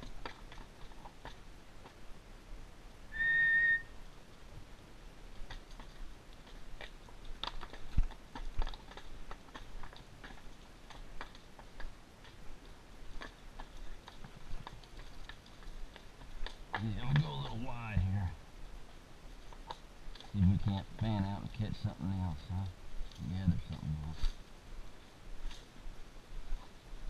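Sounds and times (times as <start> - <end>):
horse hooves on gravelly ground: 0.0 - 27.0
short whistle: 3.1 - 4.0.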